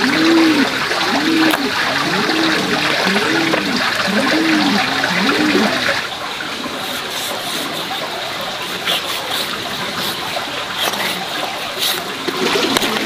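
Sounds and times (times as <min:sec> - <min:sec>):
low rising and falling call: 0:00.0 - 0:06.0
running water rushing: 0:00.0 - 0:13.0.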